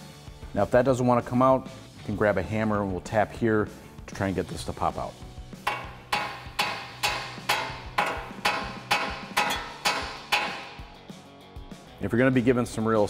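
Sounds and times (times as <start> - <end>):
hammer striking steel: 5.6 - 11.0.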